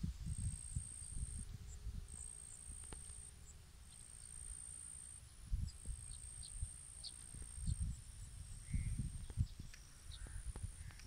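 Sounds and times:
wind buffeting microphone: 0.0 - 3.0, 5.4 - 11.0
insects trilling: 0.0 - 11.0.

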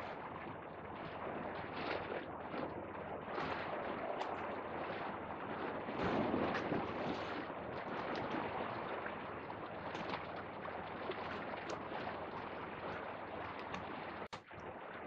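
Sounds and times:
waves splashing against rocks: 3.3 - 14.6.

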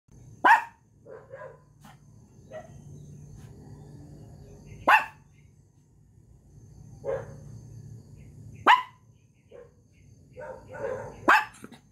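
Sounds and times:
small dog barking: 0.4 - 1.8, 2.4 - 2.8, 4.8 - 5.3, 7.0 - 7.4, 8.6 - 11.9.

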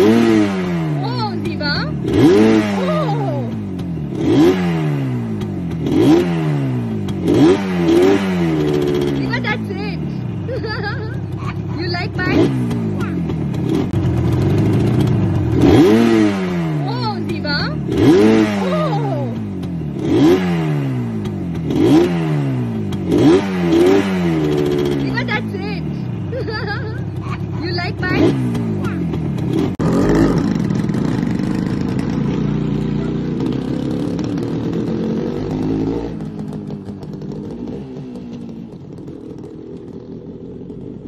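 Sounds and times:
motorcycle engine revving: 0.0 - 41.0.

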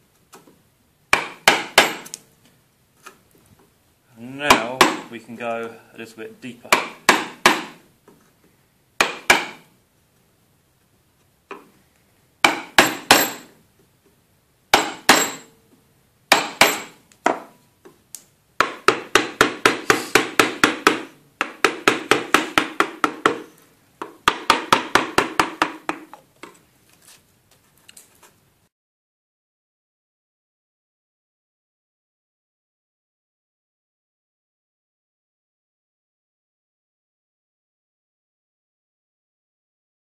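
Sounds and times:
mallet tapping chisel handle: 4.5 - 5.1, 16.3 - 17.5, 18.6 - 26.2.

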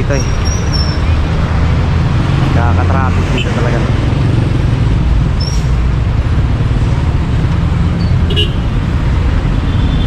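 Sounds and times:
road traffic rumble: 0.0 - 10.0.

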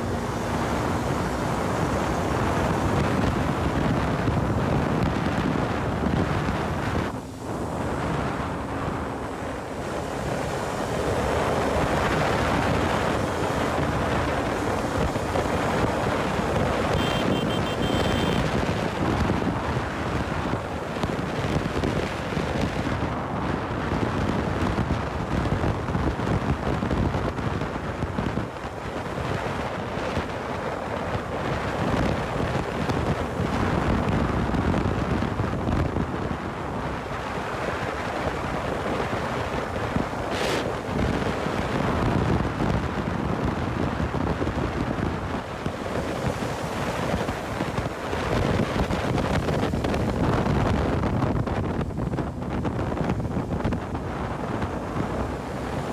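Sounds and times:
wind buffeting microphone: 0.0 - 55.9
motorcycle engine: 7.6 - 18.8.

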